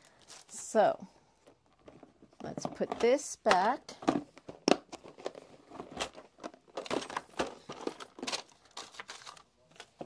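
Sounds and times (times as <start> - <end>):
plastic containers clicking: 1.8 - 10.0.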